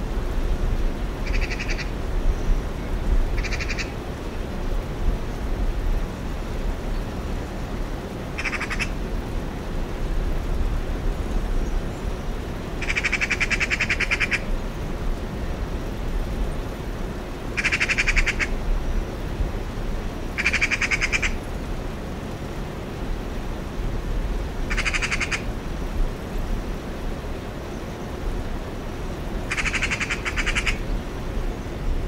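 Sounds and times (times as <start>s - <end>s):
magpie chattering: 1.3s - 1.9s, 8.4s - 8.9s, 12.8s - 14.4s, 17.6s - 18.5s, 20.4s - 21.4s, 24.7s - 25.4s, 29.5s - 30.8s.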